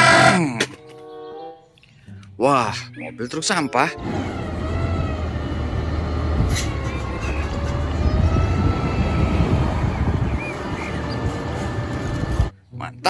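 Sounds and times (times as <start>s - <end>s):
truck engine rumbling: 3.8s - 12.5s
faint wavering whine: 4.6s - 12.5s.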